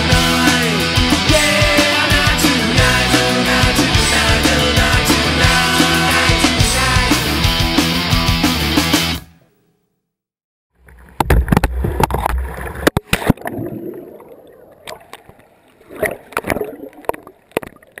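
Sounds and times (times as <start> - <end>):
underwater gurgling: 10.8 - 18.0.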